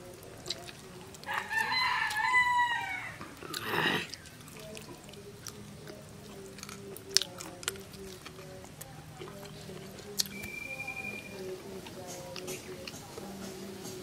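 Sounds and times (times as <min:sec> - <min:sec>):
rooster crowing: 0:01.2 - 0:03.4
harsh downward-sweeping call: 0:10.3 - 0:11.5.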